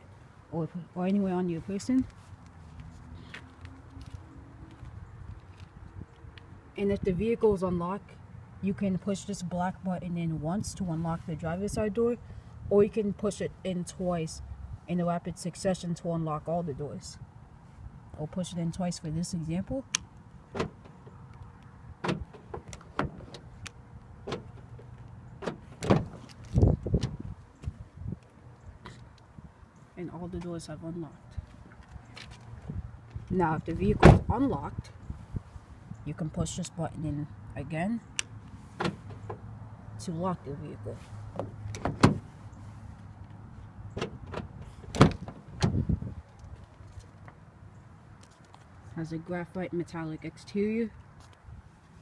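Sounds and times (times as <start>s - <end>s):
car door lock clicks and clunks: 19.9s - 21.1s, 22.0s - 27.2s, 34.0s - 34.3s, 41.4s - 42.3s, 44.0s - 45.8s.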